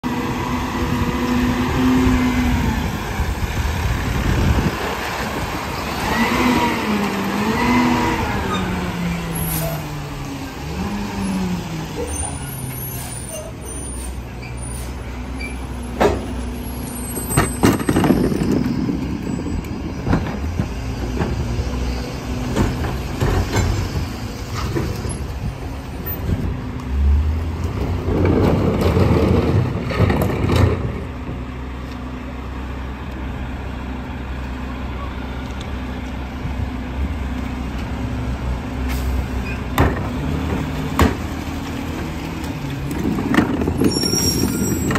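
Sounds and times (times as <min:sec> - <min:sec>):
trash cart clanking: 0:17.0 - 0:21.4, 0:42.0 - 0:44.9.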